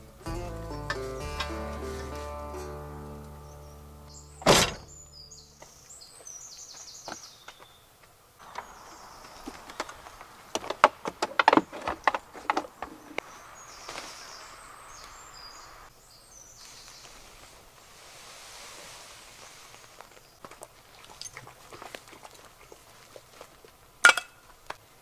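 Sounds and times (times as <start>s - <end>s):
birds chirping: 0.0s - 17.2s.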